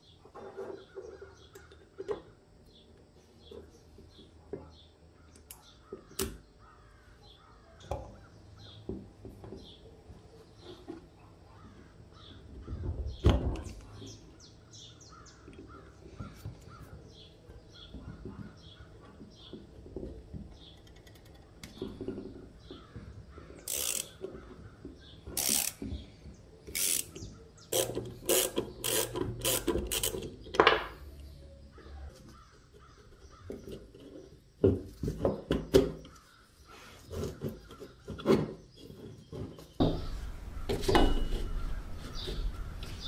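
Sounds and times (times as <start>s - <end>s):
screwdriver turning rusted screw: 23.6s - 24.4s, 25.3s - 25.9s, 26.7s - 30.5s.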